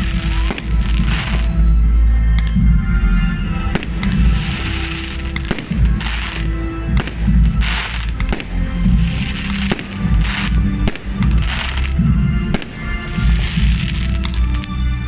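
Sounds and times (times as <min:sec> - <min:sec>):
fireworks bangs: 0:00.0 - 0:01.6, 0:03.7 - 0:14.7
crackling firework stars: 0:00.0 - 0:01.7, 0:03.7 - 0:15.0
music playing: 0:00.0 - 0:15.0.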